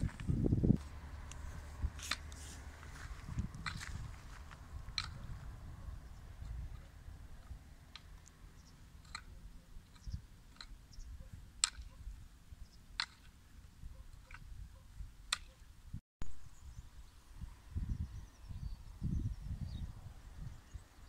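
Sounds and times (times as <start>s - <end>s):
sharp clicks: 4.5s - 5.3s, 6.4s - 8.4s, 9.0s - 10.8s, 11.6s - 12.0s.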